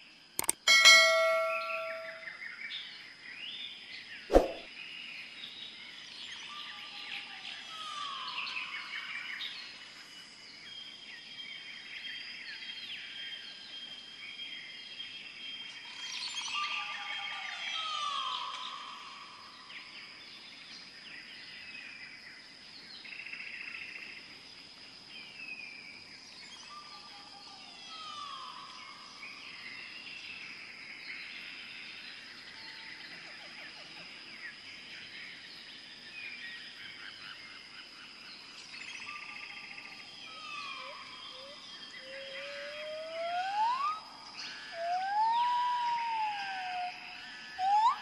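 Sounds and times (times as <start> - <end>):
sharp click: 0.4 - 2.1
birds chirping and whistling: 1.1 - 2.4, 40.2 - 48.0.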